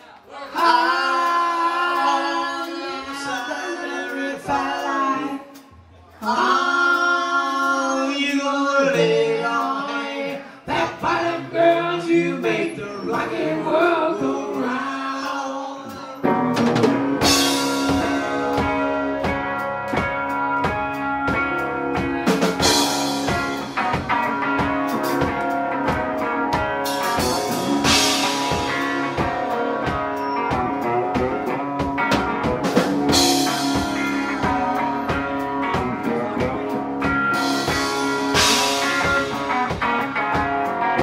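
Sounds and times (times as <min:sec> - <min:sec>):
person singing: 0:00.3 - 0:16.5, 0:22.0 - 0:41.0
rock band playing: 0:00.6 - 0:41.0
drums and cymbal crash: 0:16.2 - 0:41.0.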